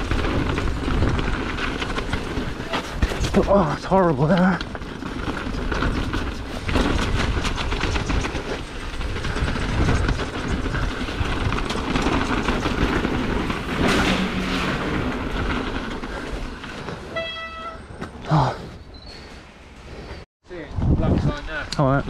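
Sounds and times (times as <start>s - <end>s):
wind rumbling on microphone: 0.0s - 17.1s, 20.5s - 22.0s
chain and frame rattling: 0.0s - 17.2s
bicycle tyre roar on gravel: 0.0s - 20.2s.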